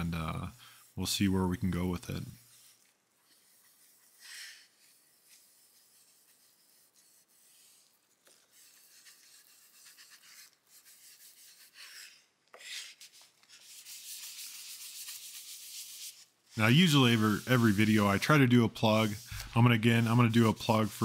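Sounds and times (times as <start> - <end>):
rag rubbing on wooden board: 12.8 - 21.0.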